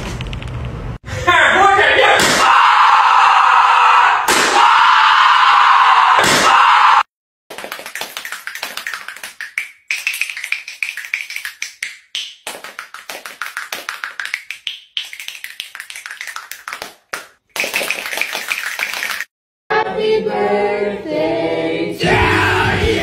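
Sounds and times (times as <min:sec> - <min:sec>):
fast sharp taps: 0:07.5 - 0:19.3.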